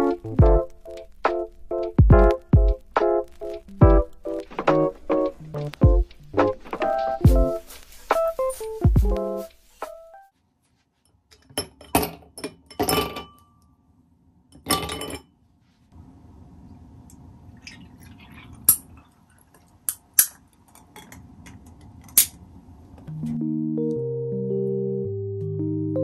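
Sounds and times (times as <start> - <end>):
milk pouring: 17.4 - 19.8.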